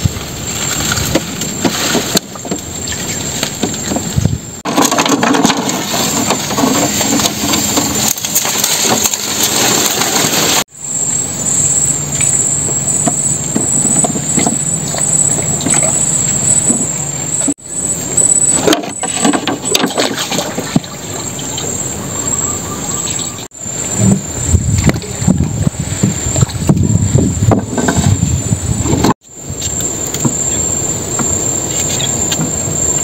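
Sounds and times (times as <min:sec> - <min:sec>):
brushwood rustling: 0:00.0 - 0:10.7
high insect drone: 0:05.8 - 0:33.0.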